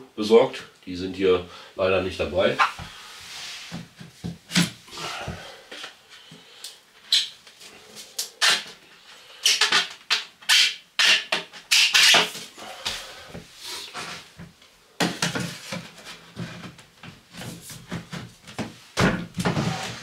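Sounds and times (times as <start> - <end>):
plastic pipe scraping and knocking: 13.4 - 20.0.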